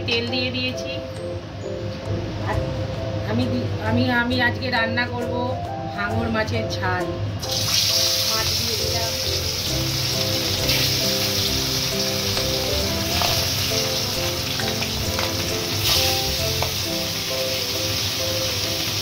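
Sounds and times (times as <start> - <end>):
background music: 0.0 - 19.0
fish frying in hot oil: 7.5 - 19.0.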